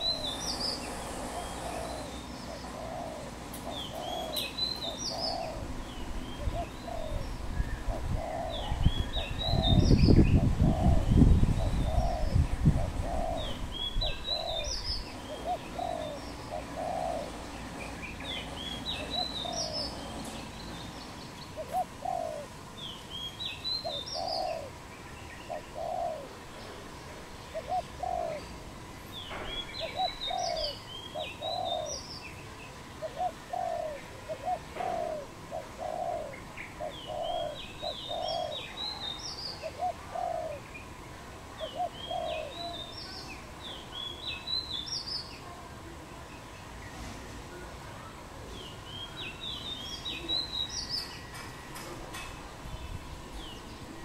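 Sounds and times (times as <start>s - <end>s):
small bird chirping: 0.0s - 12.4s
doves cooing: 0.0s - 23.2s, 23.8s - 32.1s, 32.8s - 42.9s.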